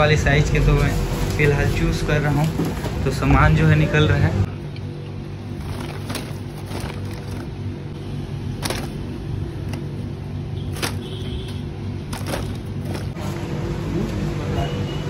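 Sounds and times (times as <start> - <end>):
steady low hum: 0.0 - 14.5
plastic bottles knocking together: 12.1 - 13.2.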